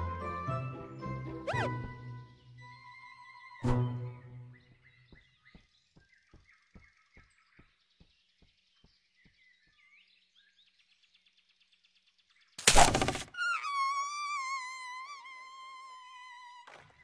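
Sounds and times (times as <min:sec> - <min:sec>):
violin music: 0:00.0 - 0:04.6
faint bird chirps: 0:01.5 - 0:17.0
loud short whack: 0:12.6 - 0:13.3.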